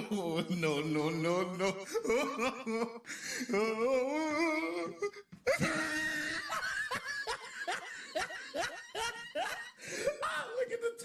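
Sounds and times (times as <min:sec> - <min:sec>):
person laughing stifled: 0:03.8 - 0:10.6.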